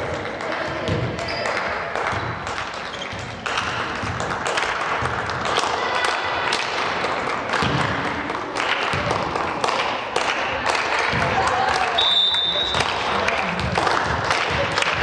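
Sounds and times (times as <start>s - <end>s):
din of crowd and players: 0.0s - 15.0s
volleyball being hit: 0.5s - 12.0s.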